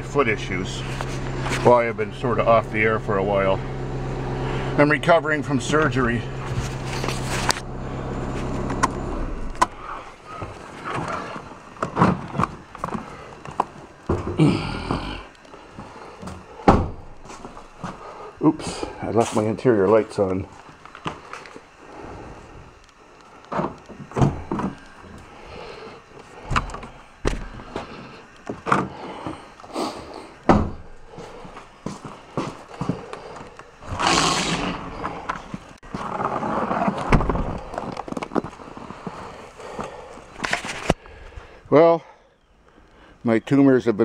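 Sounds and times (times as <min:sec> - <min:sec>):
diesel engine idling: 0:00.0 - 0:23.3, 0:23.9 - 0:36.3
car door shutting thud: 0:30.5 - 0:30.9, 0:37.1 - 0:37.6.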